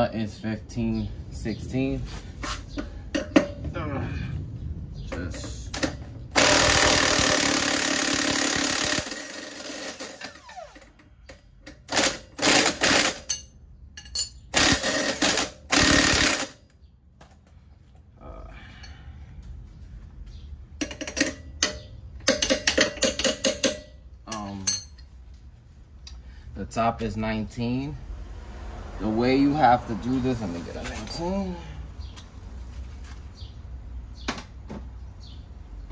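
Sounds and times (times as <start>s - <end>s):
impact wrench hammering: 5.8s - 10.4s, 11.6s - 16.6s, 20.8s - 24.9s.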